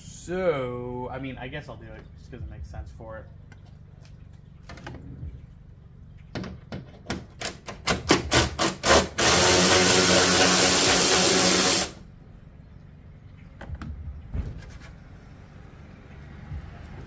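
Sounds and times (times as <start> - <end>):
power tool motor whirring: 8.1 - 12.0.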